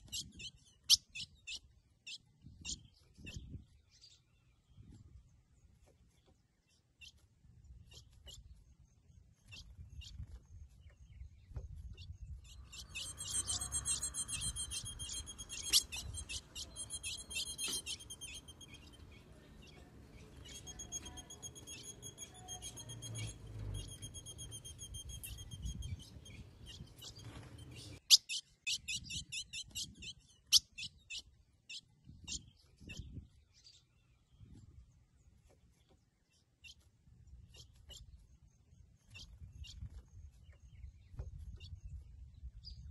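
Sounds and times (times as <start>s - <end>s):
bird chipping: 12.1s - 31.2s.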